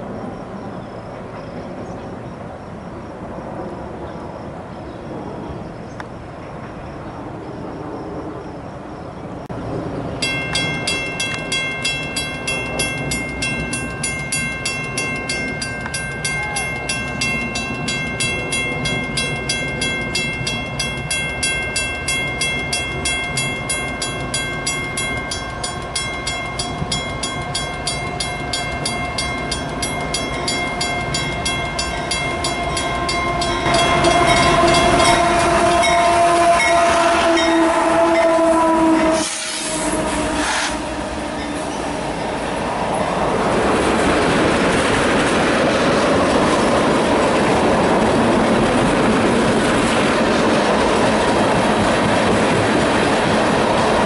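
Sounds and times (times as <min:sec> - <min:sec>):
freight train rumble: 0:00.0 - 0:54.0
railroad crossing bell ringing: 0:10.1 - 0:39.3, 0:40.8 - 0:44.3.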